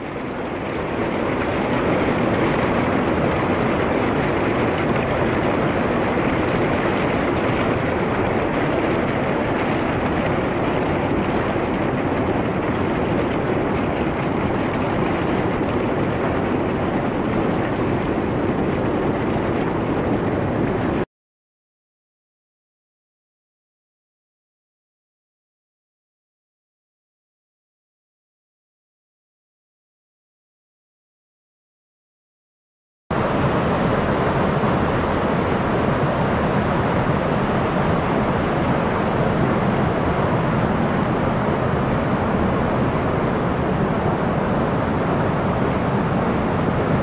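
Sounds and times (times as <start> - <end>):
steady rushing noise: 0.0 - 21.1, 33.1 - 47.0.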